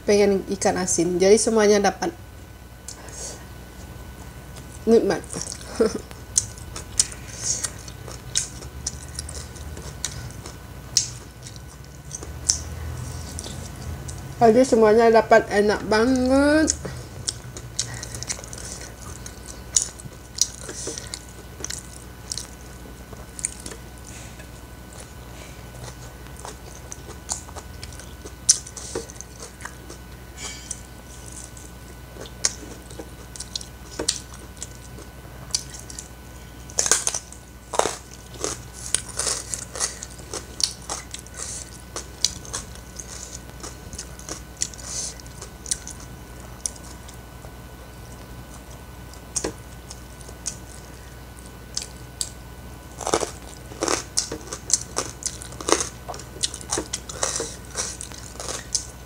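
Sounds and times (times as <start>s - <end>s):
person chewing and crunching food: 2.8s - 14.4s, 16.1s - 59.0s.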